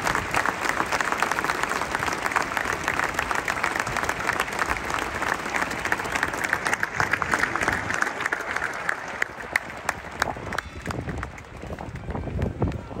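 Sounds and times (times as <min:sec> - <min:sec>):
stadium crowd applauding: 0:00.0 - 0:13.0.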